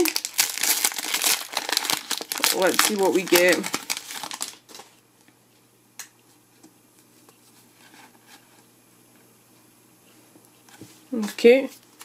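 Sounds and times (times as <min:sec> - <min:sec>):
cards rustling: 0:00.0 - 0:04.9
foil wrapper crinkling: 0:00.0 - 0:05.0.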